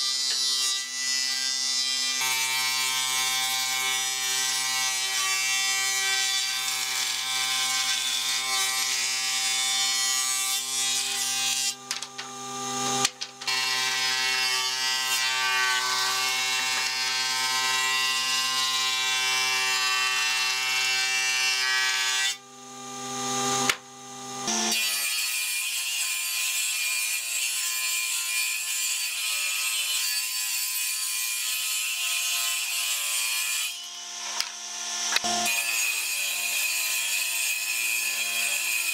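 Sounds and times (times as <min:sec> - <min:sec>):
thickness planer planing boards: 0:00.0 - 0:22.4.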